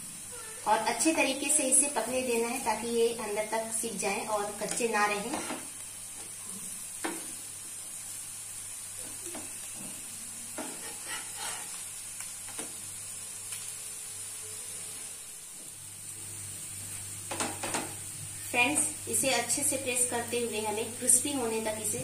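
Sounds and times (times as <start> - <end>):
patties sizzling in oil: 0.0 - 22.0
spatula scraping and tapping: 4.7 - 5.7, 10.6 - 11.8.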